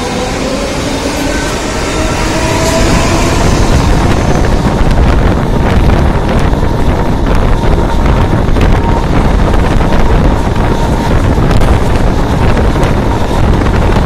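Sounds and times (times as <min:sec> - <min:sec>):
train running rumble: 0:00.0 - 0:14.0
wind buffeting microphone: 0:00.0 - 0:14.0.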